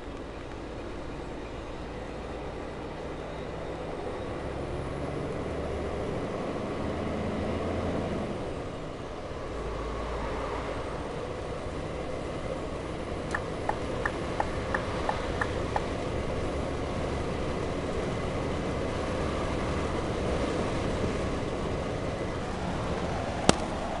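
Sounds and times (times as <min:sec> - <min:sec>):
truck engine and road drone: 0:00.0 - 0:24.0
turn indicator ticking: 0:13.2 - 0:16.0.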